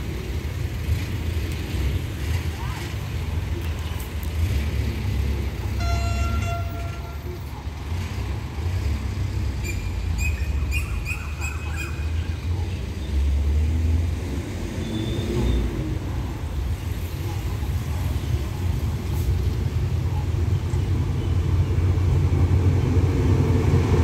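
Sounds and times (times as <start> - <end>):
horn toot: 5.7 - 7.4.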